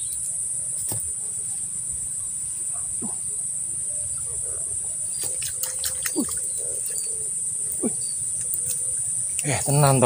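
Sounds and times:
high-pitched insect drone: 5.1 - 10.0.

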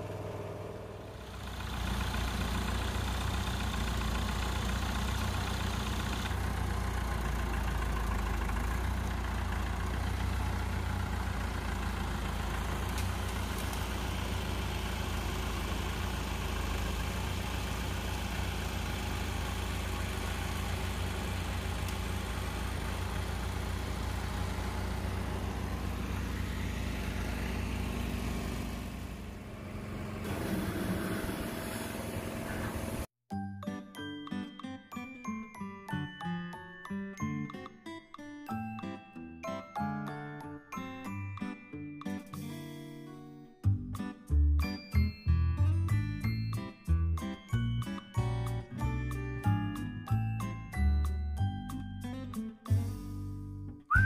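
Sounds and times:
tractor engine running: 0.0 - 33.1, 45.0 - 54.0.

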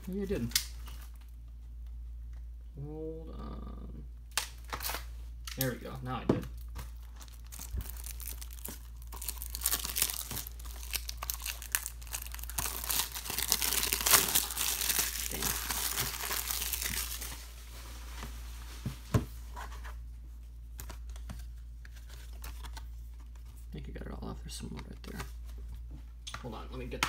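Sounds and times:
plastic wrap crackling and tearing: 6.6 - 17.5.

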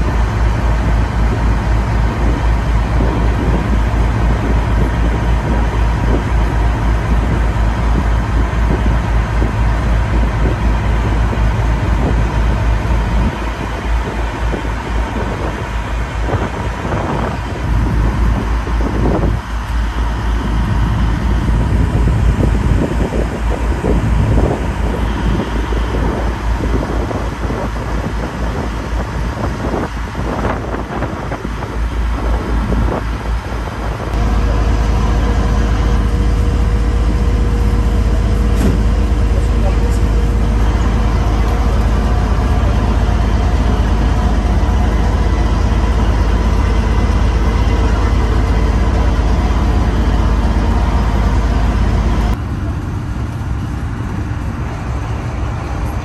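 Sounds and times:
boat engine running: 0.0 - 56.0
wind buffeting the microphone: 0.0 - 56.0.

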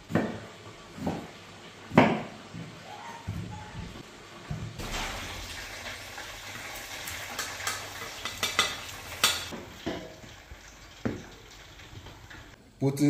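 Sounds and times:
fried fish sizzling: 4.1 - 12.6.

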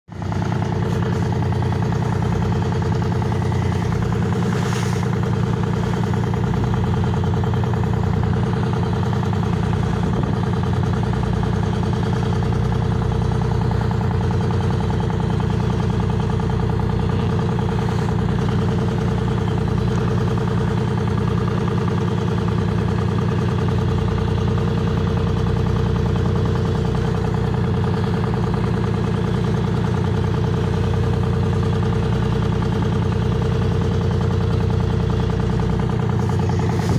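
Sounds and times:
boat engine running: 0.1 - 36.9.

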